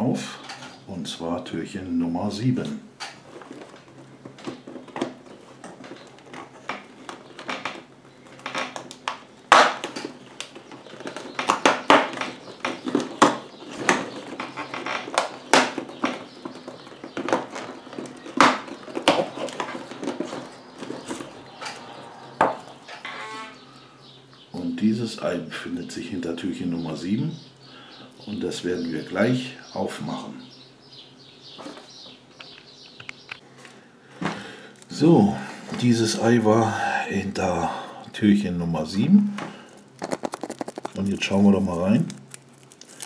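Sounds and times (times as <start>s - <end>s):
fingers scraping cardboard: 40.0s - 41.4s.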